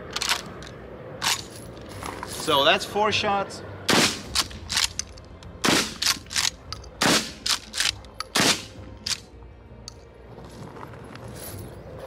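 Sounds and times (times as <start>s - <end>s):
shotgun blasts: 3.9s - 4.4s, 8.4s - 8.8s.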